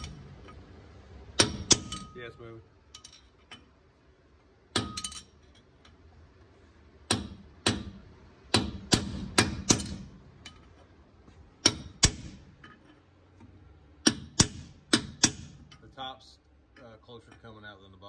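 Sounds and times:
hammer striking metal punch: 0:01.4 - 0:02.2, 0:04.7 - 0:05.3, 0:07.0 - 0:10.6, 0:11.6 - 0:12.6, 0:14.0 - 0:15.8.

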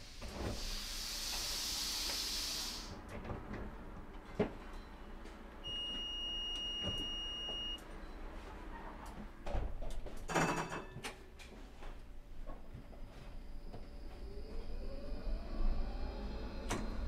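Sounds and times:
tram hiss: 0:00.0 - 0:03.0
steady high beep: 0:05.7 - 0:07.8.

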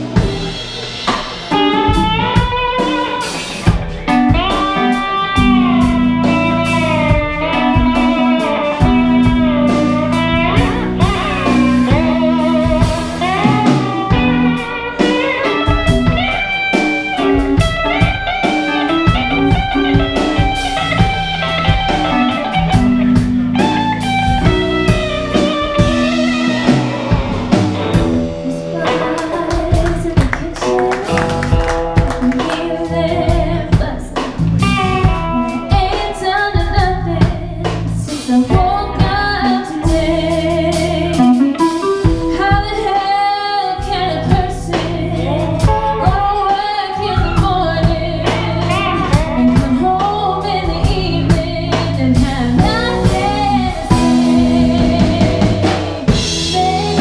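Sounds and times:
drum kit: 0:00.0 - 0:57.0
electric guitar: 0:00.0 - 0:57.0
woman singing: 0:27.9 - 0:57.0.

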